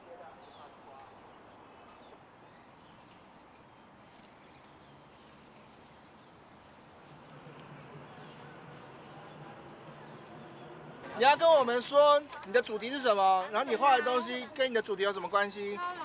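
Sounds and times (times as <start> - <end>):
bird chirps: 0.4 - 11.1.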